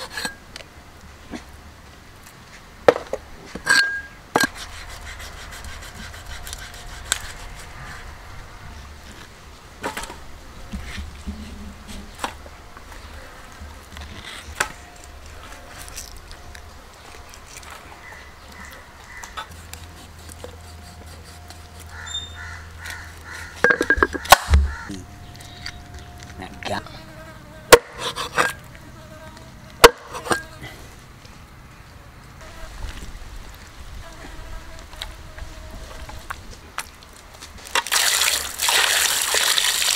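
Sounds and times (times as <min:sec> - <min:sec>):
flies buzzing: 0:09.9 - 0:30.7, 0:32.4 - 0:36.4.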